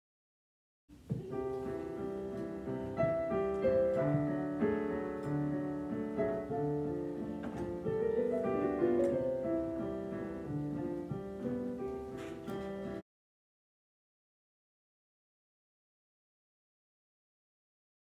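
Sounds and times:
digital piano playing: 1.2s - 13.0s.

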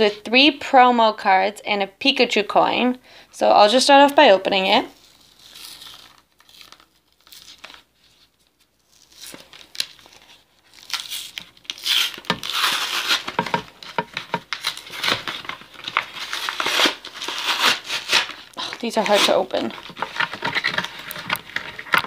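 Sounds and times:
packaging crinkling and snapping: 5.0s - 22.0s.

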